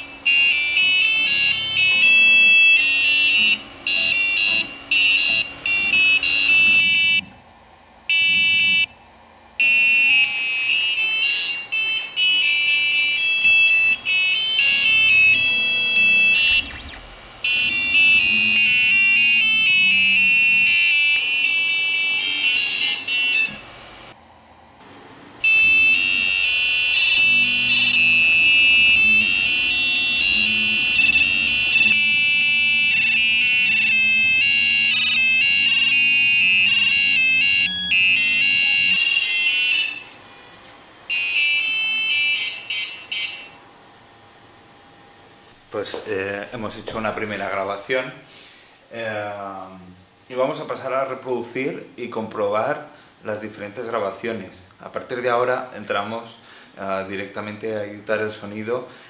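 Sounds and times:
piezo buzzer beeping melody: 0.0s - 7.3s, 8.1s - 9.0s, 9.6s - 24.2s, 25.4s - 43.6s
stepper motors humming: 0.0s - 24.2s, 24.8s - 47.7s.

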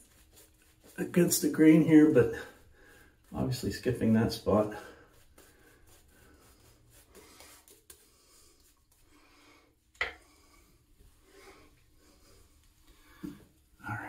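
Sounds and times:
razor scraping stubble: 0.0s - 9.1s.

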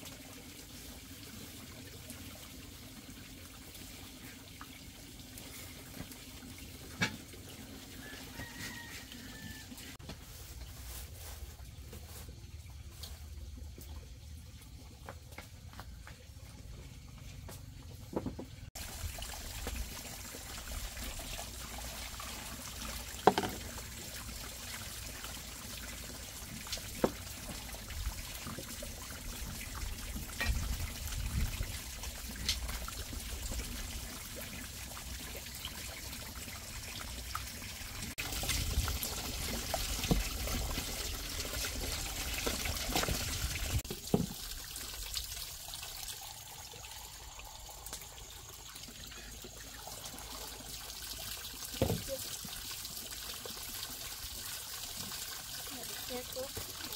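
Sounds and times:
water trickling into basin: 0.0s - 15.2s, 18.7s - 56.9s
pot knocking and clinking: 23.3s - 23.7s.

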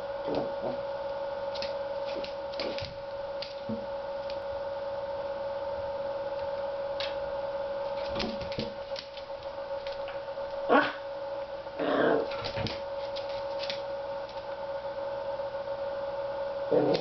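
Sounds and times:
steady hum: 0.0s - 17.0s
dog claws scrabbling on floor: 1.5s - 4.4s, 7.9s - 10.2s, 12.2s - 14.4s.

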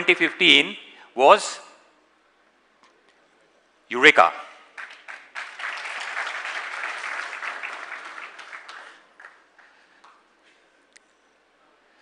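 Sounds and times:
audience clapping: 4.7s - 10.2s.

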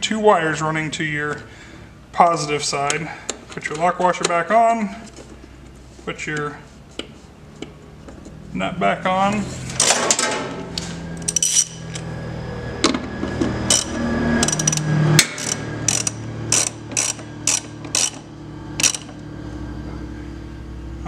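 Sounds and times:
ratchet wrench clicking: 11.2s - 12.0s, 13.7s - 19.2s.

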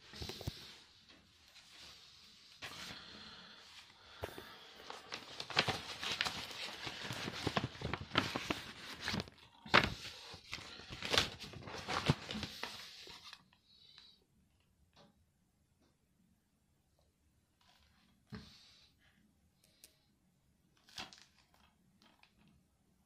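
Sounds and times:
paper packaging rustling: 4.7s - 13.5s.

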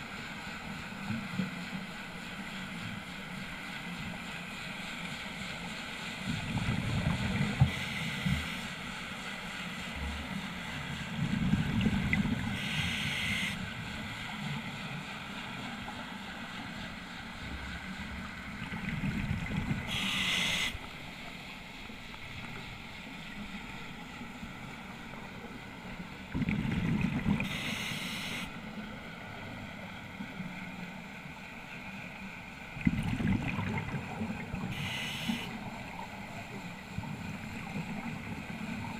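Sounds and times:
regulator hiss: 7.4s - 10.9s, 12.4s - 13.7s, 19.8s - 21.0s, 27.4s - 28.6s, 34.7s - 36.0s
exhaled bubbles underwater: 18.5s - 20.6s, 26.2s - 27.8s, 32.8s - 38.9s.

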